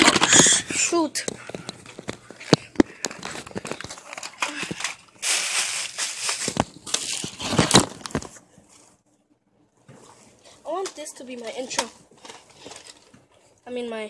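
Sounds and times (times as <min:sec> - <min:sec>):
phone handling rustling: 0:01.3 - 0:05.2.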